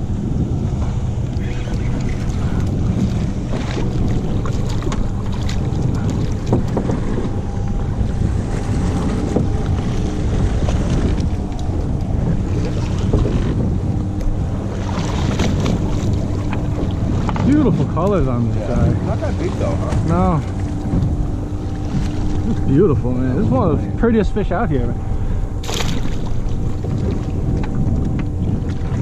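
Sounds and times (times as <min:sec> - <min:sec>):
boat engine low hum: 0:00.0 - 0:29.0
water lapping: 0:00.0 - 0:29.0
wind buffeting microphone: 0:00.0 - 0:29.0
small splashes and knocks: 0:02.0 - 0:07.3, 0:25.6 - 0:29.0.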